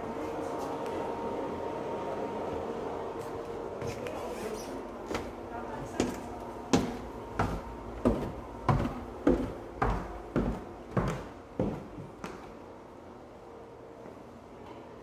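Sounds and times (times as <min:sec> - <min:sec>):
footsteps going down stairs: 0:05.0 - 0:12.6.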